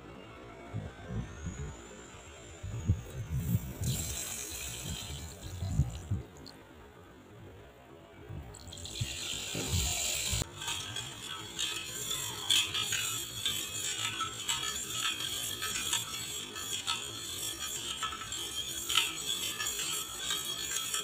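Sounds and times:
spoon clinking on metal: 8.6 - 21.0
spoon stirring in steel bowl: 8.6 - 21.0.

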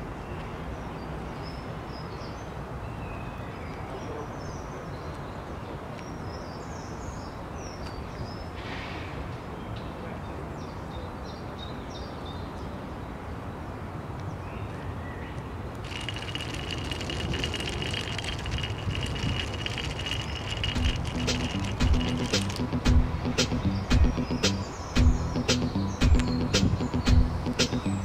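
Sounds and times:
small birds chirping: 15.8 - 28.0.

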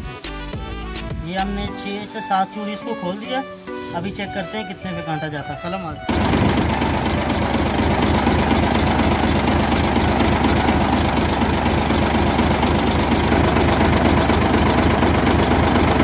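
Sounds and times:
diesel truck engine idling: 6.1 - 16.0.

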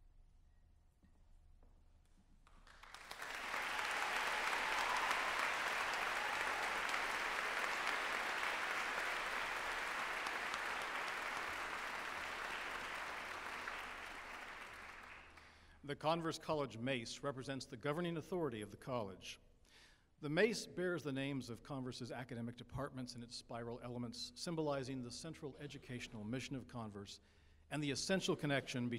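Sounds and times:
audience applause: 2.6 - 15.4.

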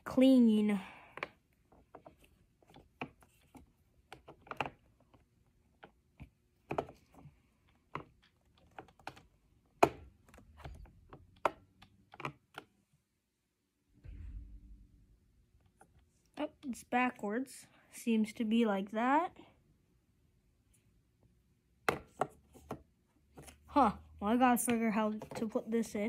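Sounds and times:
small plastic clicks and knocks: 1.1 - 12.8.

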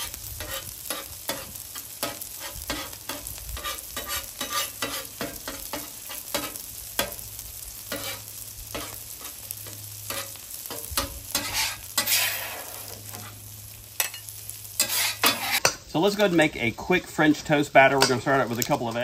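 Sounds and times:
eggs sizzling on a griddle: 0.0 - 19.0
metal spatula scraping and tapping: 0.4 - 7.2, 7.9 - 13.4, 14.0 - 15.8.

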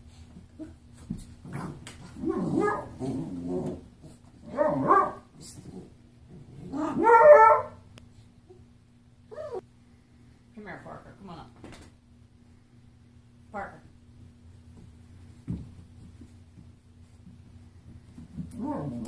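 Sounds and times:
puppy growling: 1.5 - 7.0, 18.5 - 19.0
puppy barking: 2.2 - 3.0, 4.5 - 5.3, 6.8 - 7.8.

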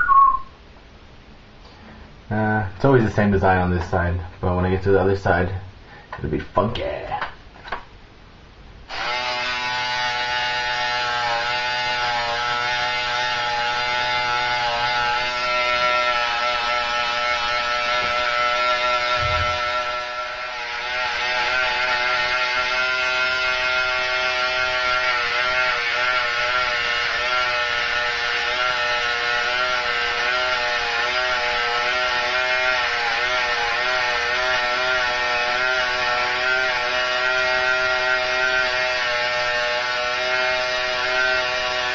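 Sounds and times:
electric hair clippers buzzing: 8.9 - 41.9.

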